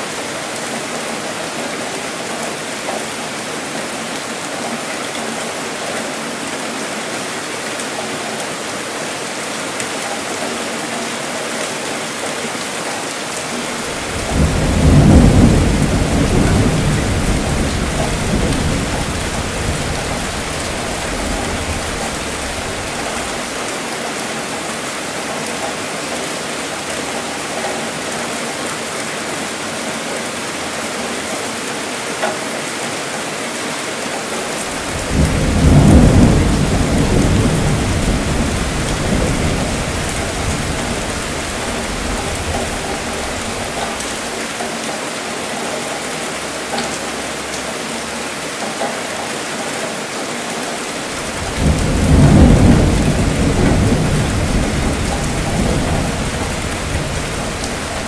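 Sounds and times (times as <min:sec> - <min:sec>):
steady rainfall: 0:00.0 - 0:58.0
thunder rolling: 0:13.7 - 0:23.6, 0:34.6 - 0:44.3, 0:51.2 - 0:58.0.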